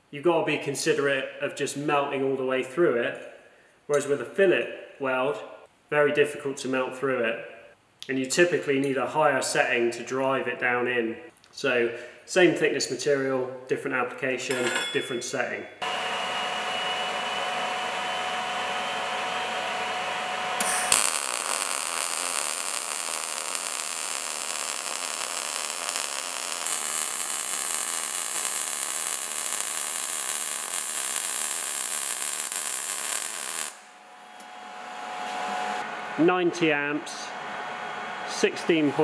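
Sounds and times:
welder hum: 0:15.8 - 0:36.0
welding arc crackling: 0:20.6 - 0:34.0.

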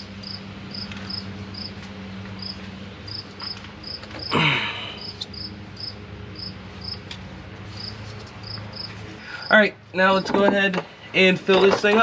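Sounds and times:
steady low hum: 0:00.0 - 0:10.3
cricket chirping: 0:00.2 - 0:01.7, 0:02.4 - 0:03.2, 0:05.0 - 0:07.0.

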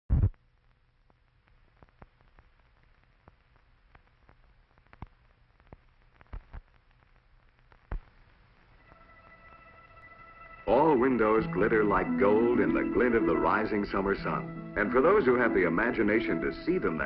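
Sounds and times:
film clicks and pops: 0:01.0 - 0:08.3.

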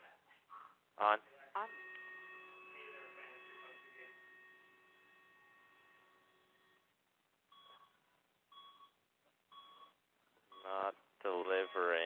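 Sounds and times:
short beeps: 0:01.6 - 0:06.9, 0:07.5 - 0:10.8, 0:11.5 - 0:12.0
faint electronic tone: 0:01.6 - 0:12.0.

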